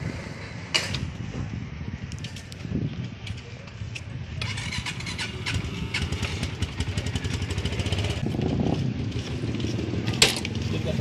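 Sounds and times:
motorcycle engine running: 4.3s - 11.0s.

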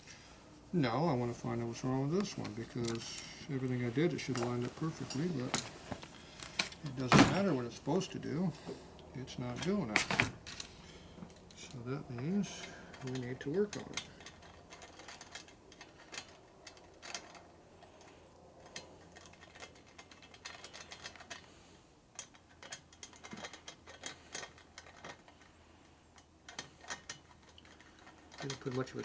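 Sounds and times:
light metallic clicks and ticks: 7.8s - 21.5s, 26.1s - 29.0s.

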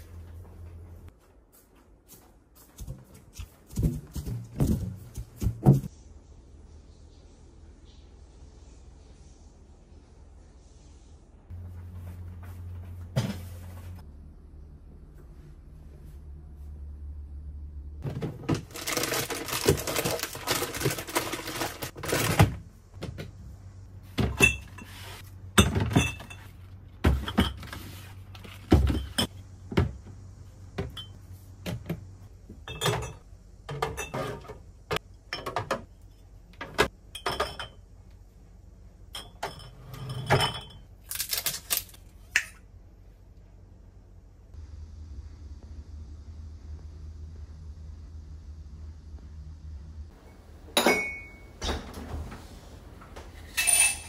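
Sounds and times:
glass bottles clinking: 24.2s - 25.0s, 25.6s - 27.7s, 32.6s - 34.4s, 37.1s - 37.8s, 50.7s - 52.0s, 53.4s - 54.0s.

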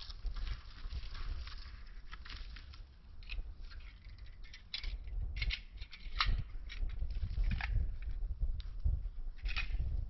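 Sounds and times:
dry twigs crackling underfoot: 0.0s - 9.9s.

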